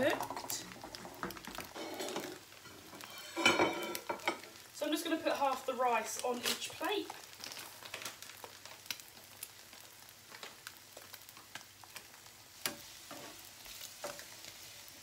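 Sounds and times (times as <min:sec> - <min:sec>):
food sizzling in pans: 0:00.0 - 0:15.0.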